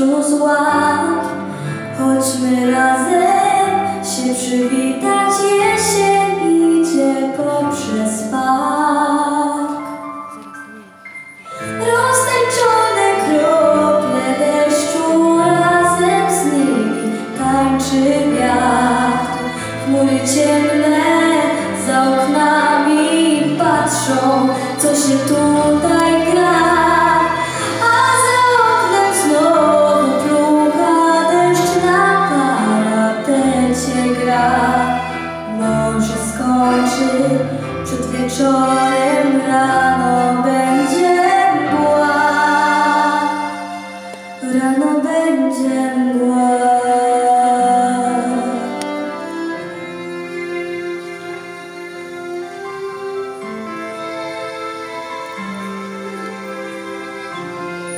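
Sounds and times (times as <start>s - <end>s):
girl singing into a microphone: 0.0s - 1.4s, 11.7s - 43.6s
instrumental accompaniment: 0.0s - 57.9s.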